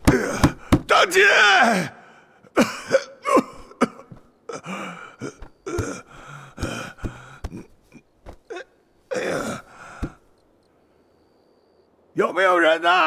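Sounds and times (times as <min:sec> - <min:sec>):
man gasping and groaning: 0:00.0 - 0:00.9, 0:01.6 - 0:10.2.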